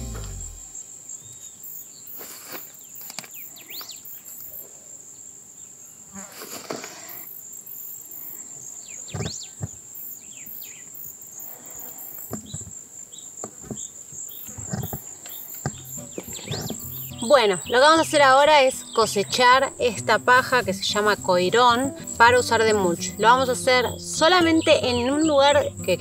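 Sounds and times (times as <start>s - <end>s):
short chirps: 0.0s - 0.9s
crickets trilling: 6.9s - 26.0s.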